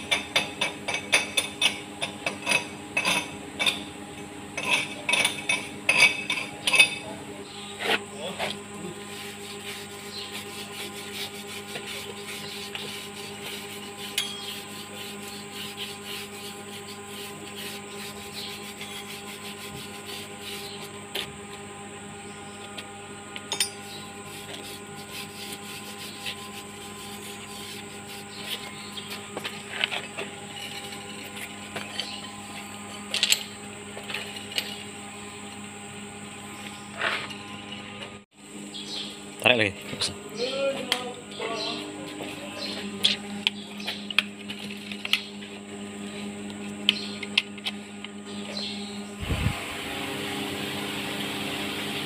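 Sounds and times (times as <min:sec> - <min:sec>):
steady hum: 0:00.0 - 0:52.0
wire brush scrubbing metal: 0:07.8 - 0:21.3, 0:23.6 - 0:34.8.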